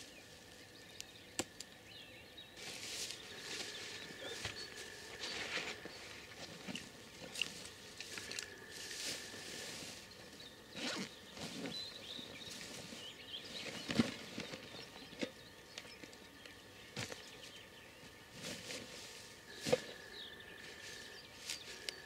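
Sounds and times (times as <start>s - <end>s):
rustling in dry grass: 0.0s - 1.0s, 2.6s - 15.0s, 16.9s - 22.0s.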